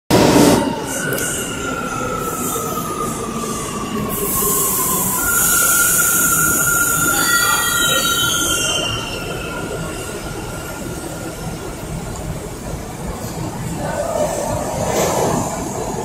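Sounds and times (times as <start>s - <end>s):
train brake hiss: 4.1s - 9.1s.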